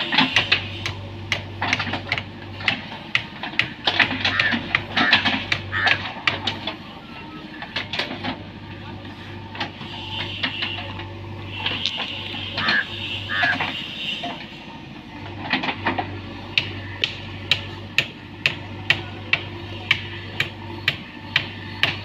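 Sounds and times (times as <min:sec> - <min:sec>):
diesel engine running: 0:00.0 - 0:22.0.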